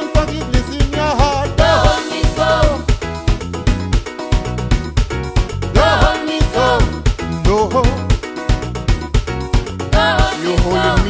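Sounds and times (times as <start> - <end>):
gospel song with drum and bass: 0.0 - 11.0.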